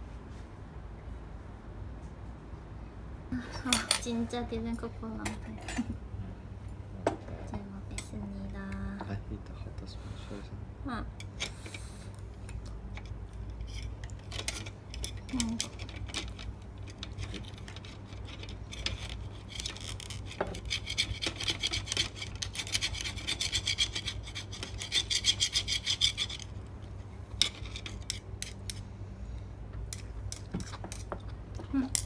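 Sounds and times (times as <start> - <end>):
metal spoon scraping shell: 13.4 - 26.5, 27.4 - 28.8.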